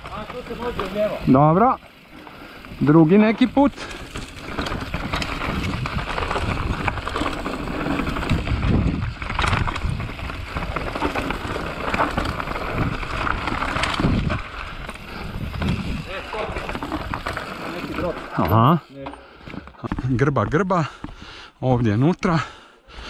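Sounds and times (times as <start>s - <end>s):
bike tyres on dirt trail: 0.0s - 23.0s
wind buffeting microphone: 4.0s - 17.3s.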